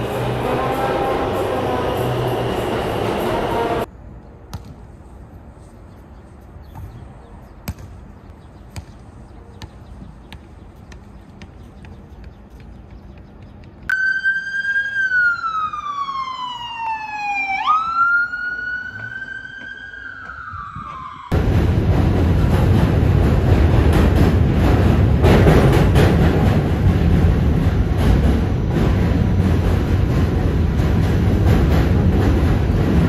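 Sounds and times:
ambulance siren wailing: 13.9s - 21.4s.

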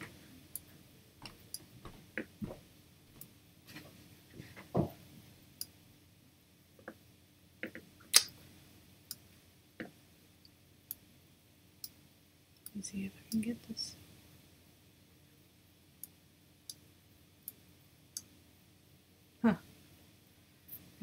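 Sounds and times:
soft knocks: 4.4s - 5.0s.

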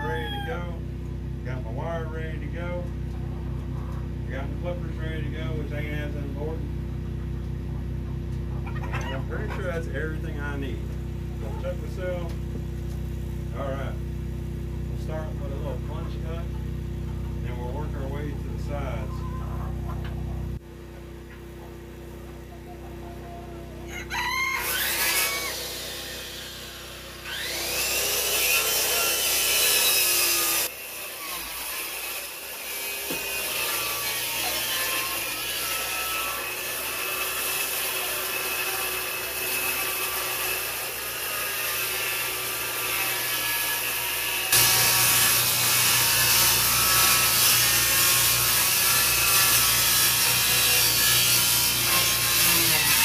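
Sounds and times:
circular saw cutting plywood: 24.1s - 53.0s.

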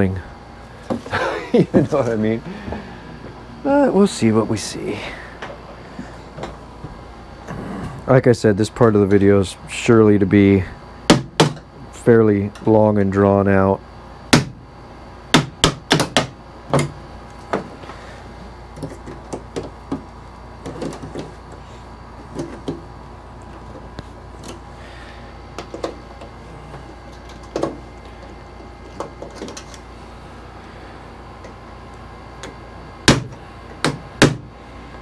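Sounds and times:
sharp knocks on wood: 11.1s - 11.6s, 14.3s - 14.6s, 15.4s - 16.9s, 33.1s - 34.5s.

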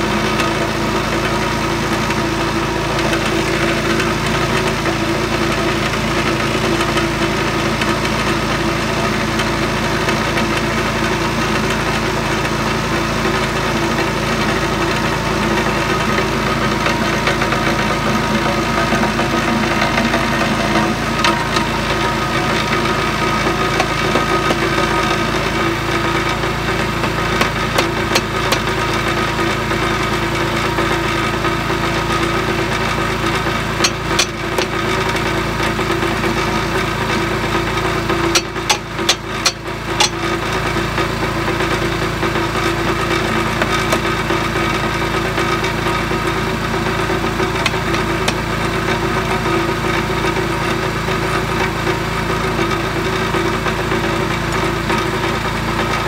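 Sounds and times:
small engine idling: 0.0s - 56.0s
mallet striking metal pin: 33.8s - 34.8s, 38.4s - 40.2s.

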